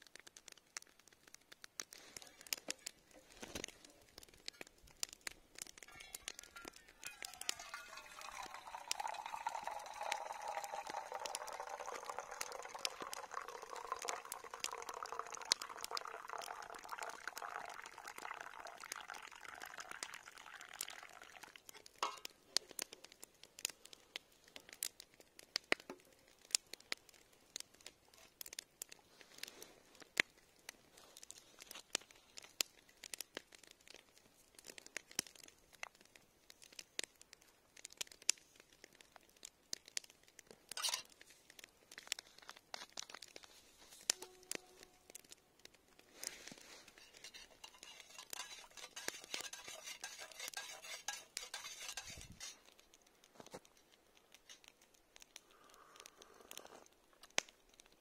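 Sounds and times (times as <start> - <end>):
tea pouring into metal mug: 5.8 - 22.3, 46.2 - 52.6.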